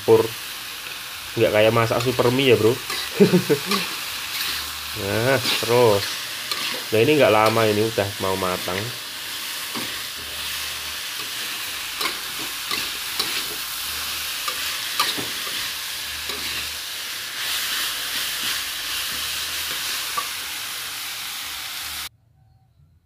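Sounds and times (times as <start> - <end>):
food sizzling in a wok: 0.0 - 22.1
metal spatula scraping a wok: 2.0 - 7.8, 8.6 - 16.8.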